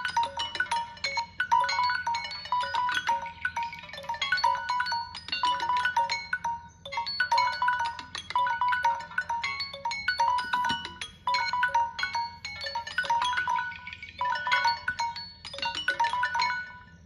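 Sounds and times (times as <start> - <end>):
smartphone timer alarms chiming: 0.0 - 17.0.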